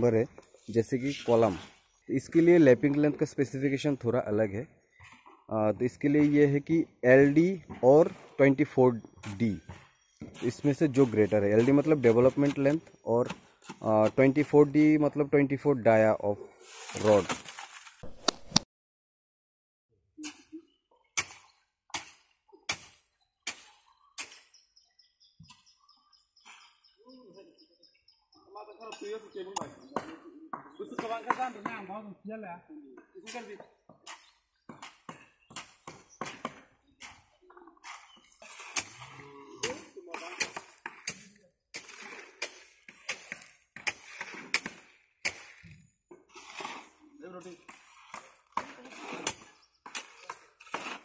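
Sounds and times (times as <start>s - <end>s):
shovels scraping wet concrete: 8.1s - 14.9s, 16.6s - 18.0s, 21.2s - 24.5s, 33.2s - 51.0s.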